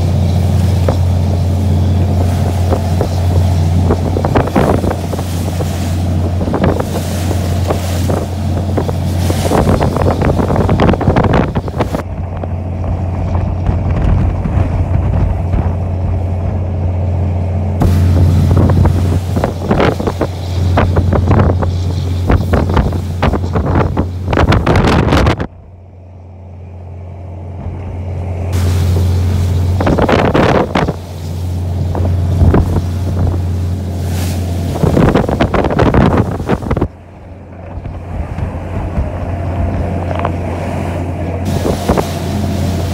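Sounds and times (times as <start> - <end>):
wind buffeting microphone: 0.0 - 17.0, 17.6 - 25.7, 27.5 - 42.9
waves slapping hull: 0.0 - 25.7, 27.5 - 42.9
boat engine droning: 0.0 - 42.9
rushing spray: 17.8 - 25.3, 28.5 - 37.0, 38.2 - 42.9.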